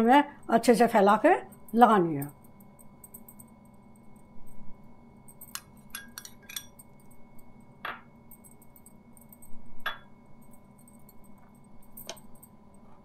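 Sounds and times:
spoon scraping and clinking on plate: 5.4s - 6.9s.

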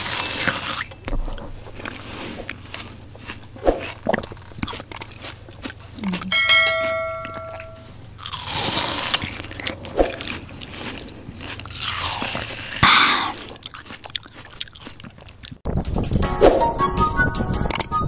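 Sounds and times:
wet chewing: 0.0s - 15.6s
person slurping noodles: 8.4s - 13.7s.

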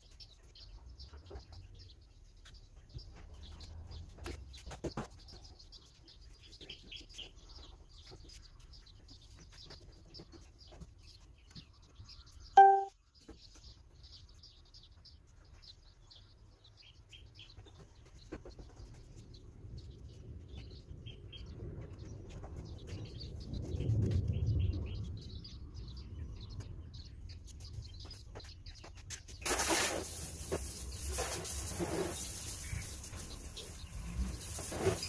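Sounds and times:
small birds chirping: 0.0s - 35.0s.

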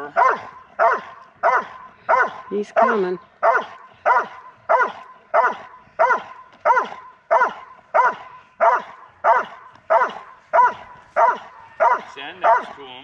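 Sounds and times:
dog barking: 0.0s - 13.0s.

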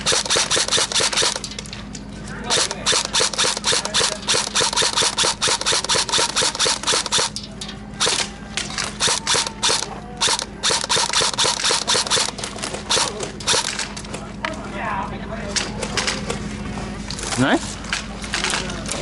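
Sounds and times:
airsoft guns firing rapidly: 0.0s - 1.5s, 2.5s - 7.4s, 8.0s - 8.3s, 9.0s - 13.8s.

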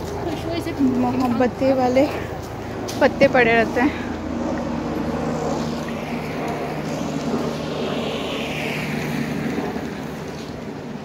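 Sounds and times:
distant vehicle engine drone: 0.0s - 11.0s
whooshing sweep: 4.0s - 10.7s.

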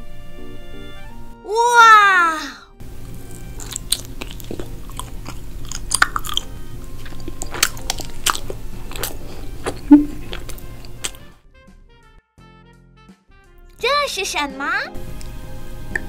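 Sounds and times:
person chewing soft sweet: 3.0s - 11.3s
wet mouth clicks: 3.2s - 11.3s, 15.2s - 16.0s.

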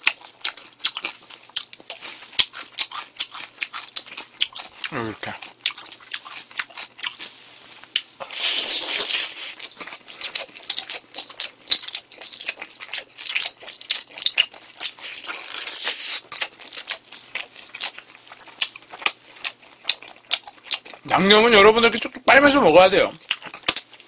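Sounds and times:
crunchy chewing: 0.0s - 21.1s, 23.1s - 24.0s
noisy sucking: 15.0s - 16.3s.

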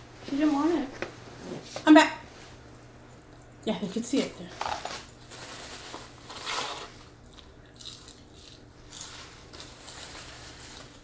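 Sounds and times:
paper rustling and crinkling: 4.2s - 7.1s, 9.1s - 11.0s.

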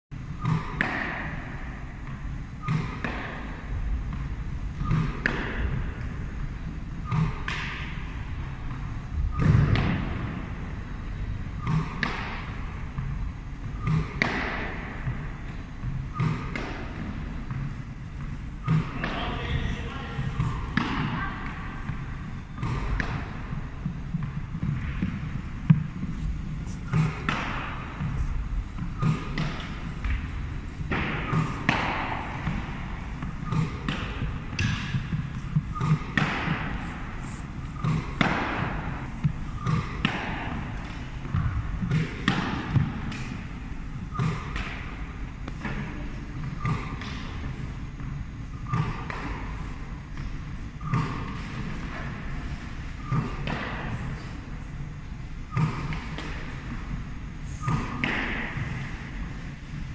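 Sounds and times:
steady low hum: 0.1s - 59.9s
balls striking goalie pads: 0.4s - 11.0s, 11.6s - 26.2s, 26.8s - 54.4s, 57.6s - 59.4s
balls bouncing on wooden floor: 37.7s - 43.4s.

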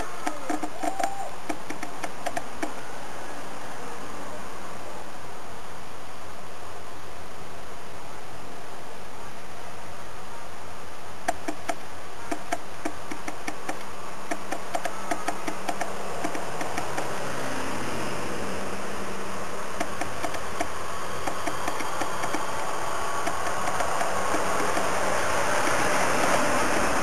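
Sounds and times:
small irregular clicks and knocks: 0.0s - 2.8s, 11.3s - 17.1s, 19.8s - 25.0s
trucks passing slowly: 0.0s - 27.0s.

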